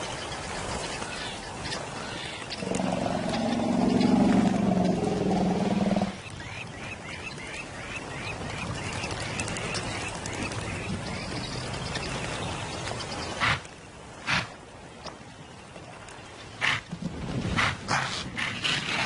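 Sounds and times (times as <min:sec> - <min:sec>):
lion growling: 0:02.6 - 0:06.2.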